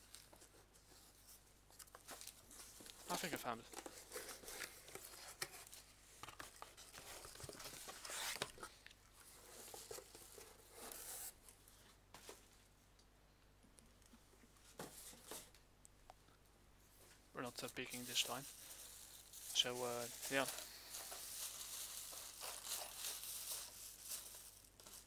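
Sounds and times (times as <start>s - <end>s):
rustling and crinkling in a suitcase: 17.1s - 25.0s.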